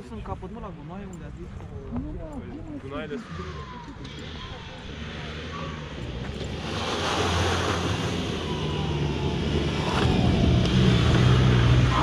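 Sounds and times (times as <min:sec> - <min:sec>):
suv engine under throttle: 0:03.3 - 0:12.0.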